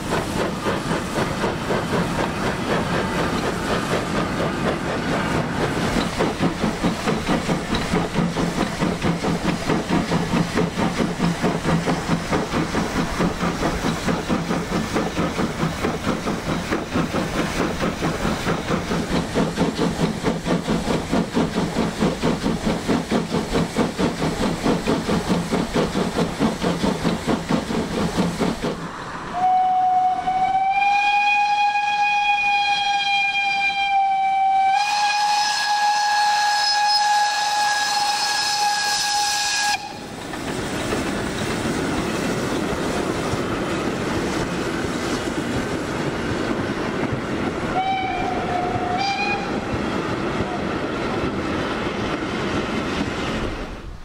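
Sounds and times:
steam hissing: 0:00.0 - 0:32.6, 0:34.4 - 0:54.0
steam locomotive chuffing: 0:00.0 - 0:54.0
steam whistle blasts: 0:29.3 - 0:40.1, 0:47.7 - 0:49.5.

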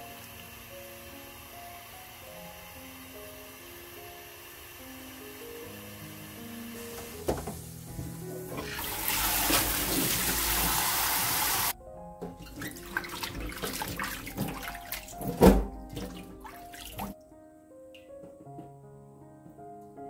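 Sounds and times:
background music: 0:00.0 - 0:20.0
tap water pouring into metal bowl: 0:08.5 - 0:11.7, 0:12.5 - 0:17.2
water sloshing in bowl: 0:12.4 - 0:17.2.

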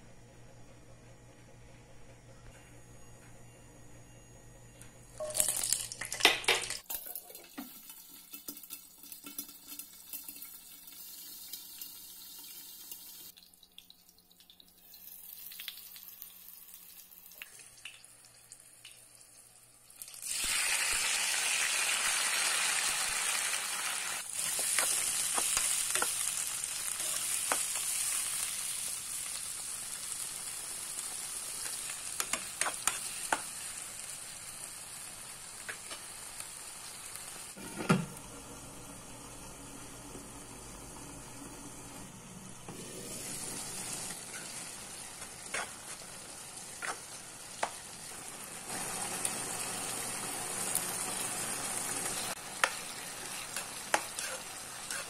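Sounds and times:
chillies crackling in hot oil: 0:05.2 - 0:37.6, 0:43.1 - 0:55.0
tomatoes sizzling in pan: 0:05.2 - 0:37.7, 0:42.6 - 0:55.0
spatula scraping pan: 0:45.2 - 0:46.2, 0:46.8 - 0:47.2, 0:52.6 - 0:55.0.

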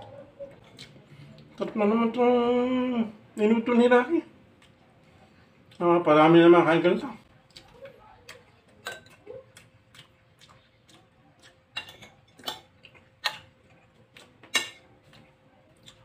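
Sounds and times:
chewing with mouth clicks: 0:00.1 - 0:01.7, 0:04.4 - 0:05.9, 0:07.2 - 0:16.0.

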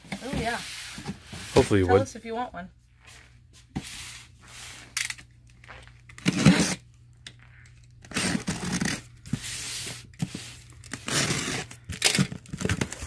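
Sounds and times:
knife slitting packing tape: 0:06.1 - 0:06.8, 0:08.0 - 0:09.0, 0:10.3 - 0:12.3.

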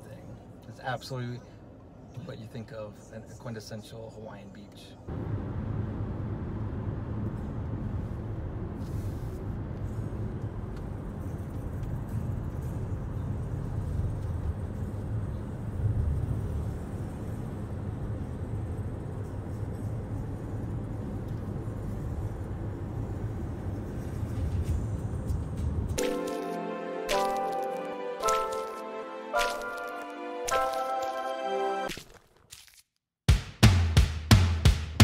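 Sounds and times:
car road rumble from cabin: 0:05.1 - 0:12.5.

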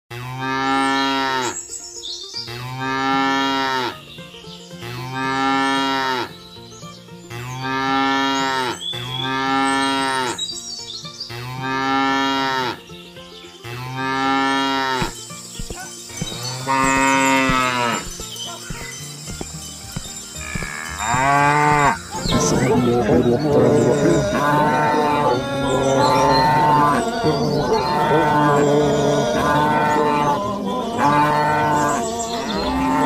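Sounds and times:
cow mooing: 0:00.1 - 0:01.6, 0:02.5 - 0:04.0, 0:04.8 - 0:06.3, 0:11.3 - 0:12.8, 0:13.6 - 0:15.1, 0:16.2 - 0:18.1, 0:20.4 - 0:33.0.

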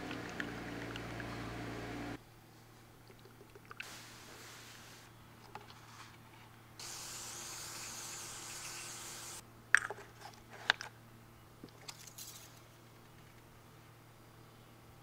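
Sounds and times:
aerosol spray can hissing: 0:06.8 - 0:09.4.

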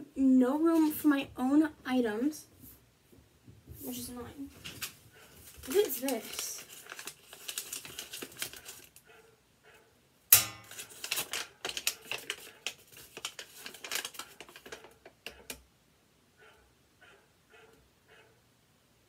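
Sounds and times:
paper rustling and crinkling: 0:03.8 - 0:09.0, 0:10.7 - 0:15.5
sharp knock: 0:10.3 - 0:10.8.

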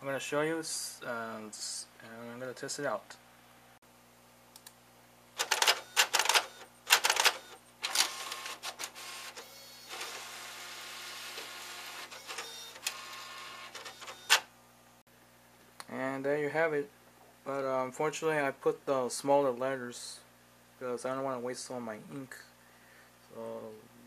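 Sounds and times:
printer whirring: 0:05.4 - 0:14.4
printer mechanical bursts: 0:05.4 - 0:14.5.

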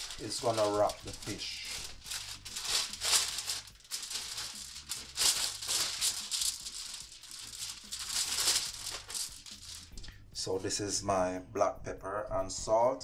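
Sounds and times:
aluminium foil crinkling swishes: 0:00.0 - 0:10.1.

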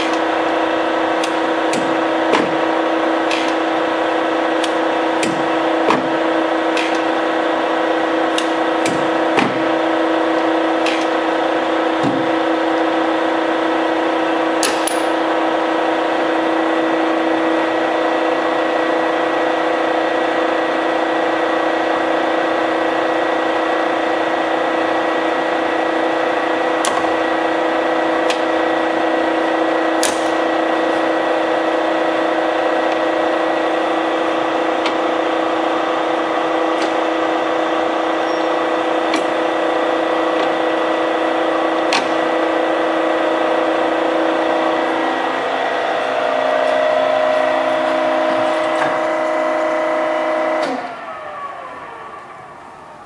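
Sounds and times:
lathe humming: 0:00.0 - 0:53.0
lathe handle clicks and clunks: 0:03.2 - 0:03.8, 0:39.0 - 0:39.4.

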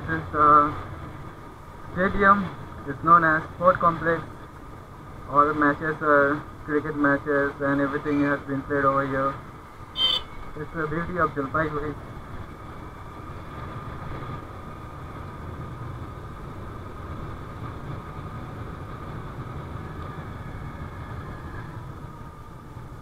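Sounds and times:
scooter engine cruising: 0:09.8 - 0:10.7.

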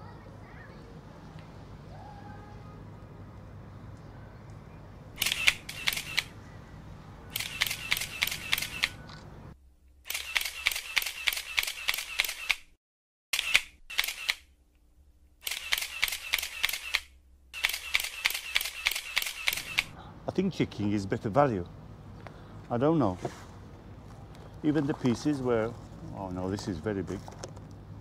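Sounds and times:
camera shutter clicks: 0:05.2 - 0:06.4, 0:07.3 - 0:09.3, 0:10.1 - 0:12.7, 0:13.3 - 0:14.5, 0:15.4 - 0:20.0.

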